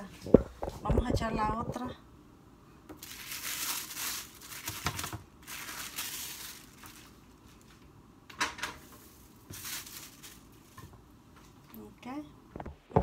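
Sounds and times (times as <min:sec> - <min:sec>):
plastic sheets crinkling: 0:03.0 - 0:07.9, 0:08.8 - 0:10.8.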